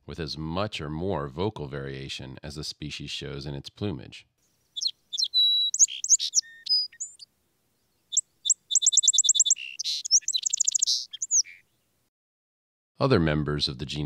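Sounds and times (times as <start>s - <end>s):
sparrow singing with trills: 4.7s - 11.9s.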